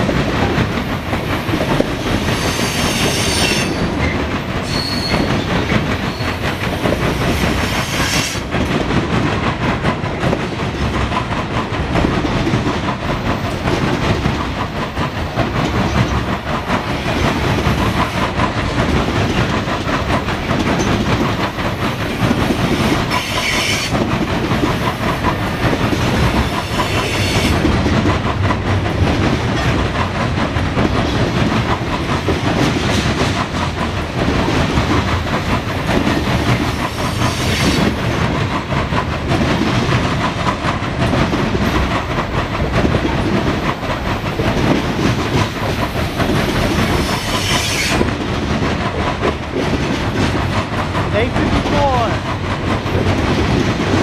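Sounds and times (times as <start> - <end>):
train wheels clickety-clack on rails: 0.0 - 54.0
high-pitched wheel squeals: 4.6 - 5.3.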